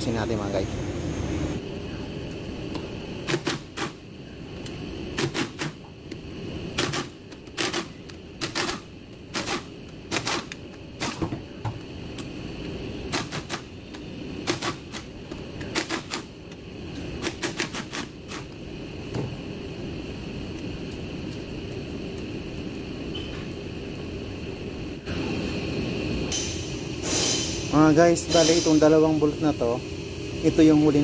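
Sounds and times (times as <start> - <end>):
low background hum: 0.0 - 31.0
hand ratchet clicking: 6.8 - 11.2.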